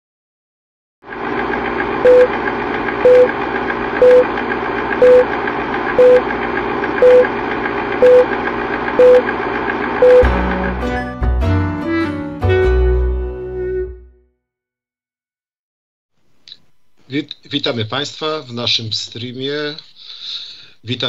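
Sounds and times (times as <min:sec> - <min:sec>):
film projector whir: 0:01.0 - 0:10.8
short mid-pitched beeps: 0:02.1 - 0:02.3, 0:03.1 - 0:03.3, 0:04.0 - 0:04.3, 0:05.0 - 0:05.3, 0:06.0 - 0:06.2, 0:07.0 - 0:07.2, 0:08.0 - 0:08.3, 0:09.0 - 0:09.2, 0:10.0 - 0:10.3
low-pitched music: 0:10.1 - 0:14.2.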